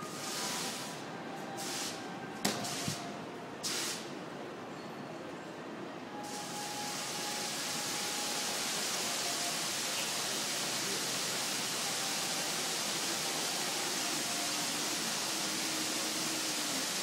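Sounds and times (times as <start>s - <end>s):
fountain water falling into basin: 7.5s - 17.0s.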